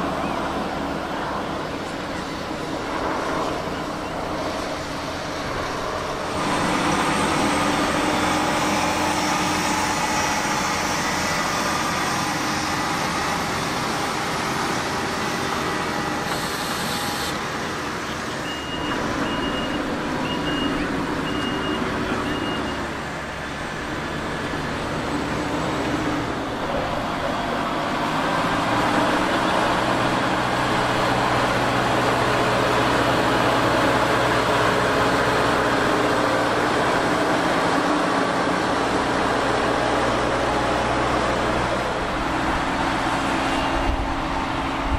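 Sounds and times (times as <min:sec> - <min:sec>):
tractor engine under load: 0:00.0 - 0:44.9
reversing alarm beeping: 0:16.2 - 0:17.4, 0:18.4 - 0:23.0.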